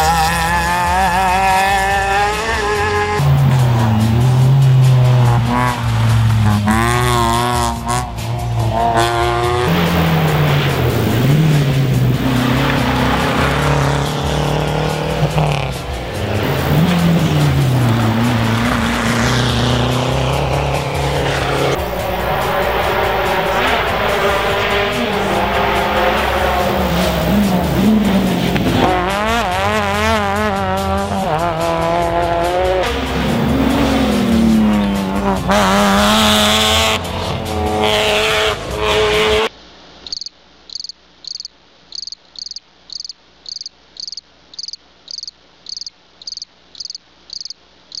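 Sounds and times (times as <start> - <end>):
rally car engine at high revs: 0.0 - 39.5
crickets chirping: 40.0 - 48.0.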